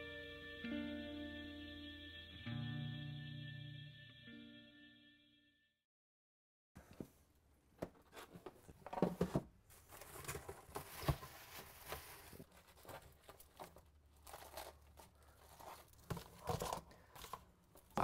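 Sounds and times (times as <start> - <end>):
rustling and crinkling handling noise: 6.8 - 18.0.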